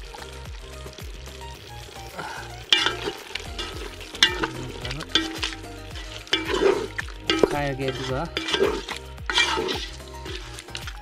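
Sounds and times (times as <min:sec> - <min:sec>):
curry sizzling: 0:00.0 - 0:11.0
wooden spatula scraping metal pot: 0:02.6 - 0:11.0.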